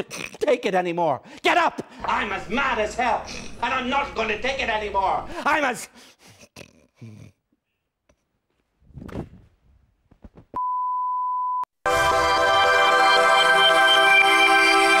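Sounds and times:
tv ident music: 11.9s - 15.0s.

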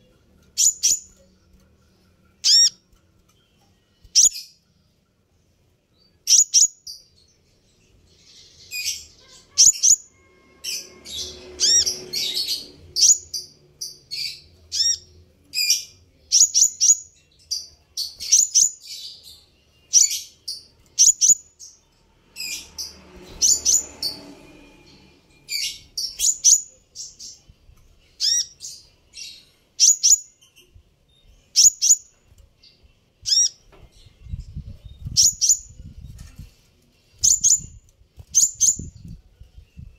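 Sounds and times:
sunbird chirping: 0.0s - 5.0s.

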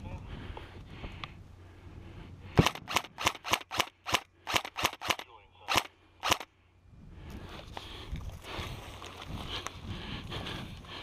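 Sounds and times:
airsoft rifle shots: 2.6s - 6.5s.

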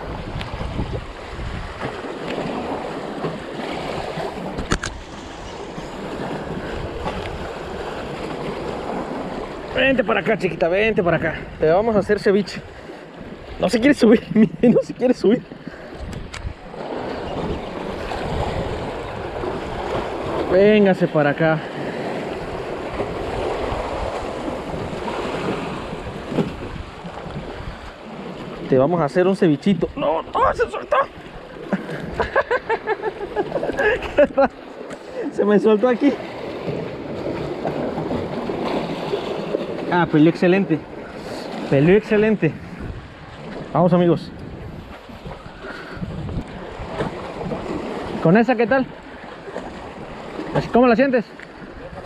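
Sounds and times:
wind buffeting microphone: 0.0s - 10.0s, 15.7s - 20.6s, 21.8s - 28.8s, 40.8s - 48.2s
sea waves: 0.0s - 52.0s.

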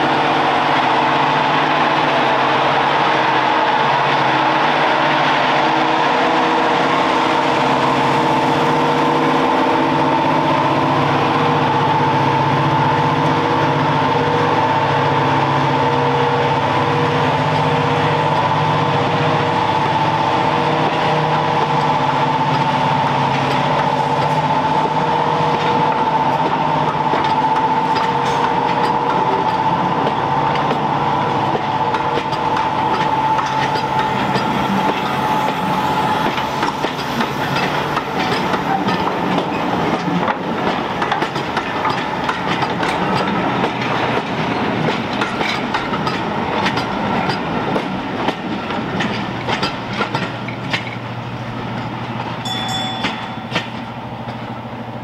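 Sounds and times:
diesel locomotive engine whine: 0.0s - 55.0s
train wheels clicking over rail joints: 20.8s - 54.6s.

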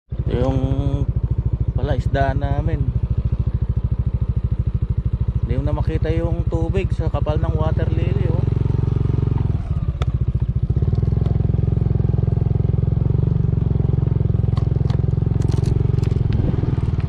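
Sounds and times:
motorcycle engine running: 0.1s - 17.0s
light clicks and rattles: 14.5s - 17.0s.

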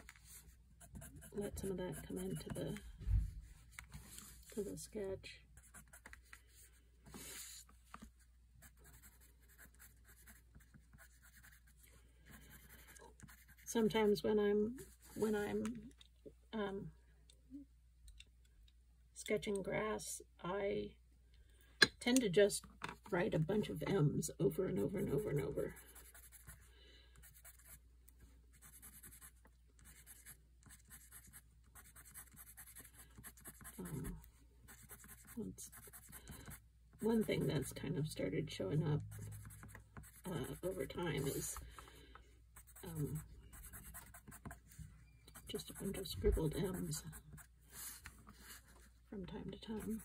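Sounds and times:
pencil scratching on paper: 0.0s - 2.8s, 5.6s - 8.0s, 8.6s - 14.0s, 24.6s - 27.8s, 28.5s - 37.8s, 39.0s - 41.6s, 42.6s - 48.9s, 49.6s - 50.0s.

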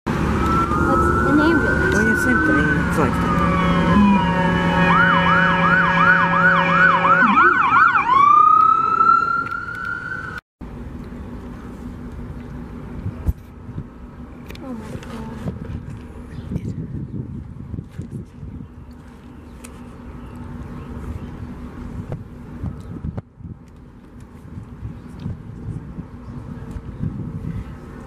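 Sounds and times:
emergency siren wailing and yelping: 0.2s - 10.4s.

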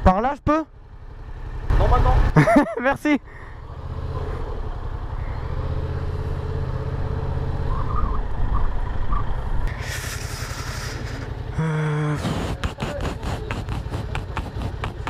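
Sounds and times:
motorcycle engine at low revs: 0.0s - 15.0s
broad rushing hiss: 9.7s - 11.5s.

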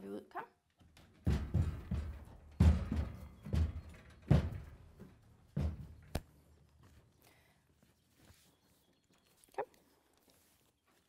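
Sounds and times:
horse hooves on trailer ramp: 0.6s - 7.0s.

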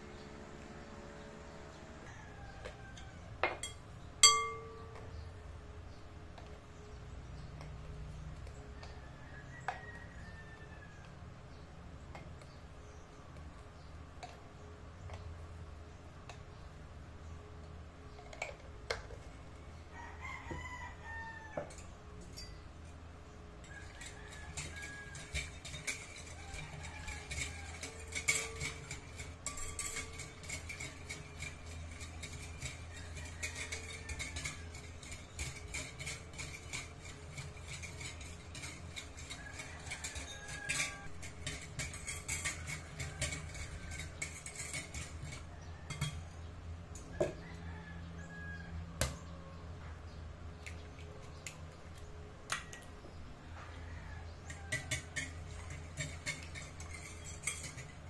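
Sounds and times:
whisk tapping glass bowl: 3.4s - 5.1s, 23.6s - 46.2s, 54.5s - 58.0s.

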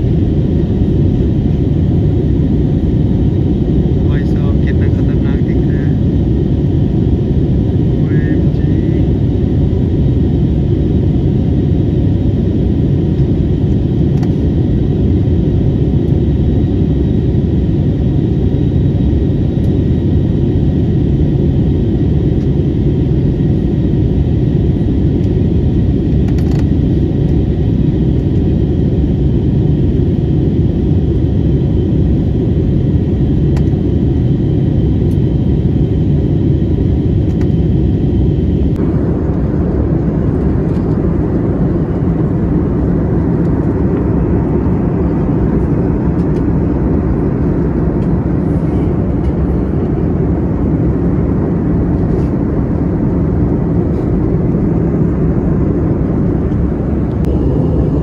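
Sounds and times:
jet engine cabin rumble: 0.0s - 58.0s
faint high whine: 55.3s - 58.0s.

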